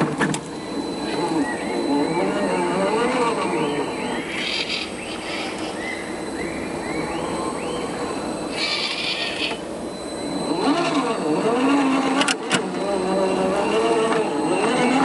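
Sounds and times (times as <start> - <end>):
faint electric motor whir: 0.0 - 15.0
bird chirping: 0.6 - 2.3, 3.4 - 9.7.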